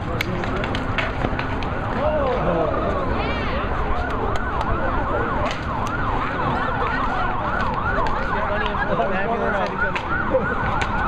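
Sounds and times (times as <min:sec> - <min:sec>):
hockey sticks striking pavement: 0:00.0 - 0:02.5, 0:04.0 - 0:06.0, 0:07.5 - 0:11.0
street crowd noise: 0:00.0 - 0:11.0
siren sweeping fast: 0:01.8 - 0:11.0.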